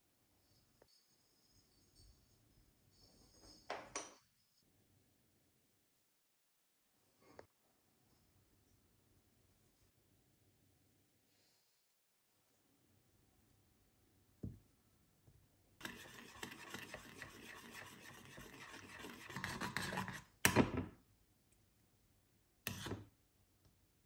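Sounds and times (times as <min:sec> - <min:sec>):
spoon scraping ceramic bowl: 0:15.8 - 0:20.3.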